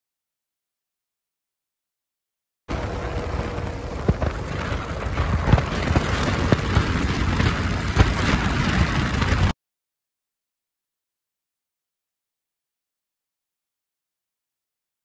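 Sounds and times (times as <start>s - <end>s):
motorcycle engine: 2.7s - 9.5s
wind buffeting microphone: 2.7s - 9.5s.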